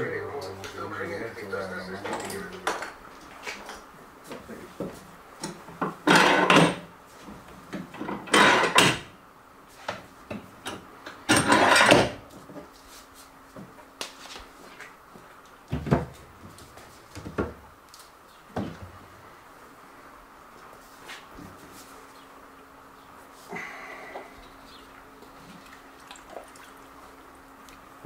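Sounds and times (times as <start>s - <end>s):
metal clamps scraping and clattering: 6.1s - 6.8s, 8.0s - 9.0s, 11.3s - 12.2s.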